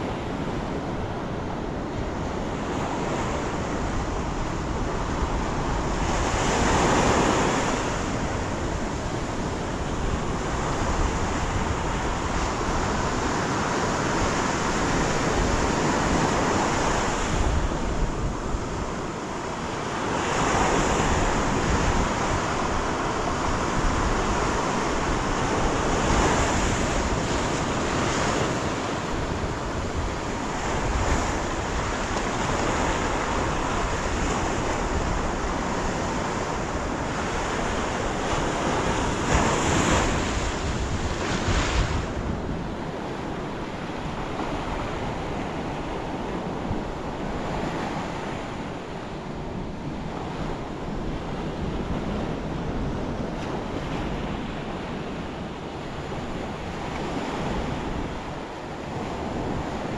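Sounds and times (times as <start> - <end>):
ocean surf breaking on beach: 0.0 - 59.9
wind buffeting microphone: 0.0 - 59.9.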